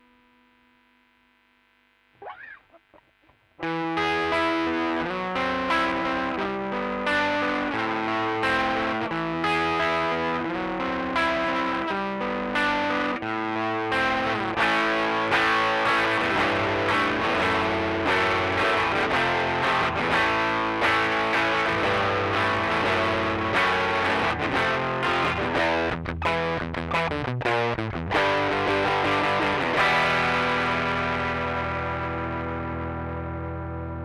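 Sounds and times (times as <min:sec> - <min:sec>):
overdriven electric guitar: 0:00.0 - 0:34.0.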